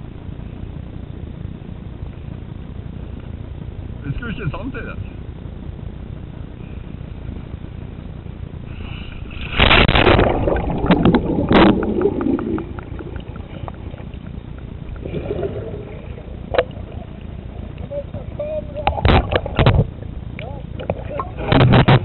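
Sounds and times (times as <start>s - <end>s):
muffled underwater bubbling: 7.8s - 22.0s
kayak splashing into sea: 8.9s - 20.0s
churning water: 9.1s - 22.0s.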